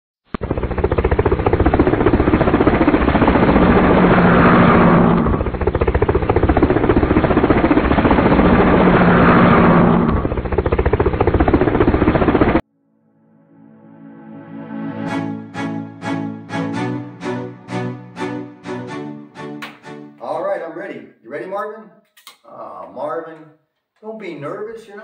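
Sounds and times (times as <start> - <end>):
fast mechanical chattering: 0.4 - 12.6.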